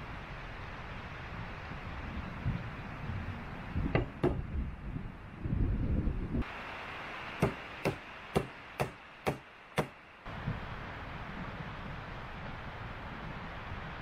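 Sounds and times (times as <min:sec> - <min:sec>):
log knocking on wooden pole: 0:03.9 - 0:04.4, 0:07.4 - 0:10.0.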